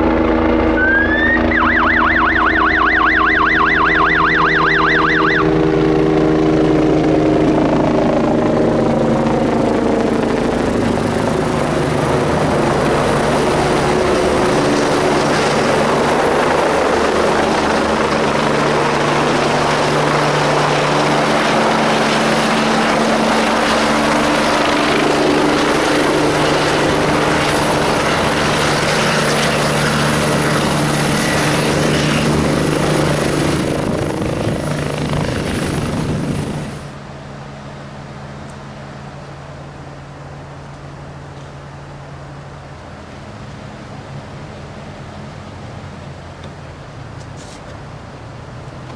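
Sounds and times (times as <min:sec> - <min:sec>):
helicopter rotor clatter: 0:00.0 - 0:37.0
turbine whine: 0:00.0 - 0:44.9.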